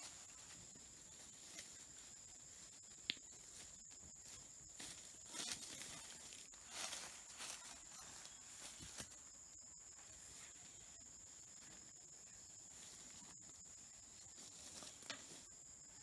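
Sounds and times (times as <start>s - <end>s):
high-pitched hiss: 0.0s - 16.0s
faint rustling and handling: 3.4s - 9.2s.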